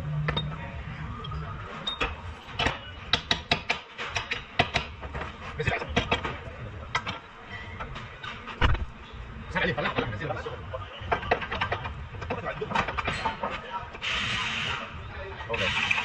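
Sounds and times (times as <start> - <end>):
hand tools clicking and knocking: 1.9 - 7.2.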